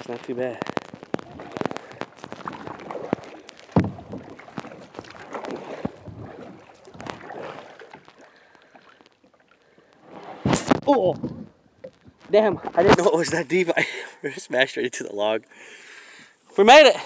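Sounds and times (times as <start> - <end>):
paddling and water sloshing: 0.0 - 17.0
sharp knocks: 2.4 - 4.7.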